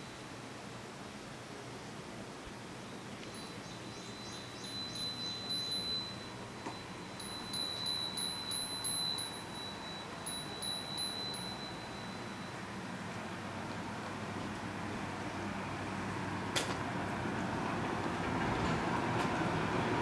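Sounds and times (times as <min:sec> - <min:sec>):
wind bell tinkling: 0:03.2 - 0:12.8.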